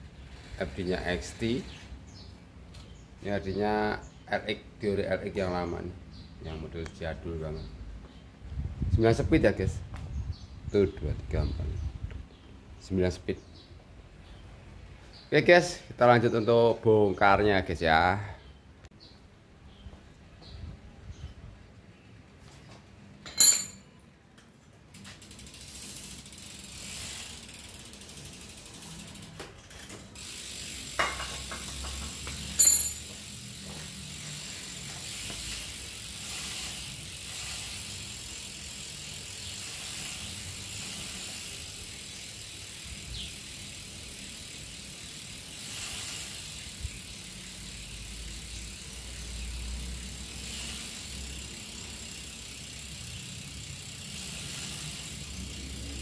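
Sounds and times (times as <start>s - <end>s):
freewheel pawls clicking: 24.9s - 56.0s.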